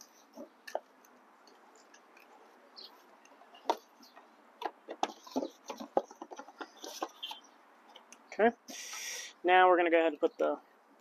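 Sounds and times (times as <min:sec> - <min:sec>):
plastic cover clicks and knocks: 0:04.6 - 0:07.3.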